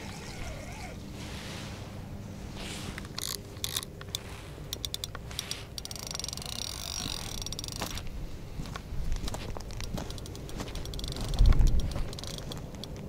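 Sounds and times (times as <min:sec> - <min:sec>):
gear clicks and scrapes: 0:00.0 - 0:01.0, 0:02.9 - 0:08.1, 0:09.2 - 0:13.0
fast fine mechanical ticking: 0:03.2 - 0:07.8, 0:10.0 - 0:12.9.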